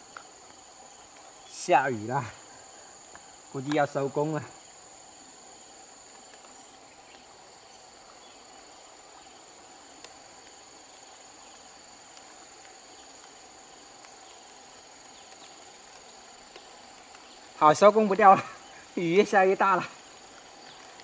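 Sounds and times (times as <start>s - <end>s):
faint ticks: 0.0s - 1.6s, 2.4s - 4.0s, 6.0s - 8.4s, 9.0s - 17.6s, 19.9s - 21.0s
high-pitched insect chorus: 0.0s - 21.0s
light rain falling on water: 0.0s - 21.0s.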